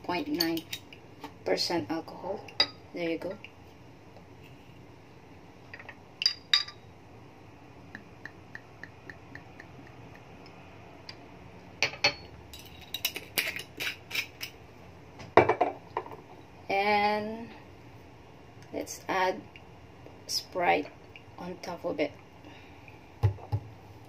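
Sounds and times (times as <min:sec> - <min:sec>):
glass bottle clinking: 0:05.8 - 0:06.8.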